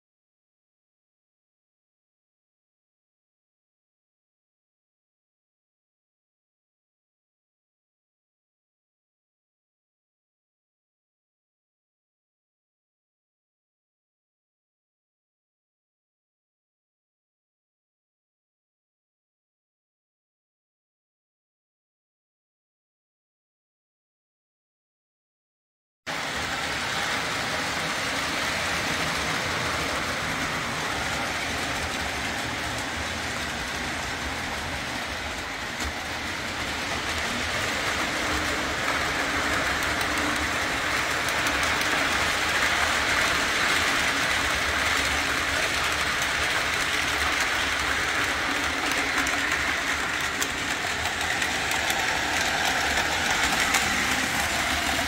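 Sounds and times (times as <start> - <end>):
faint rail clatter: 26.1 - 55.0
model train motor whir: 26.1 - 55.0.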